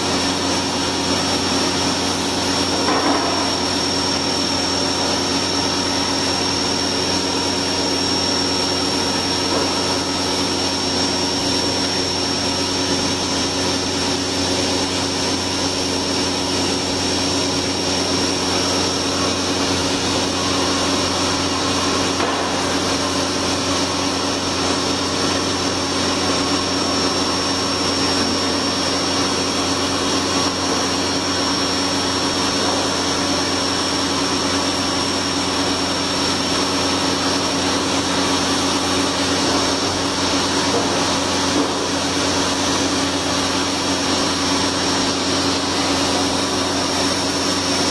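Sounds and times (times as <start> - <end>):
machine spindle high whine: 0.0 - 47.9.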